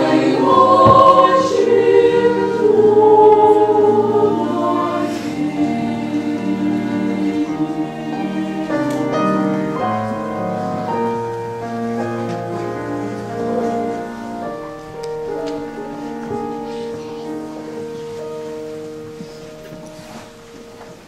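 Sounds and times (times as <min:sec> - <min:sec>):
girls' choir singing: 0:00.0 - 0:21.0.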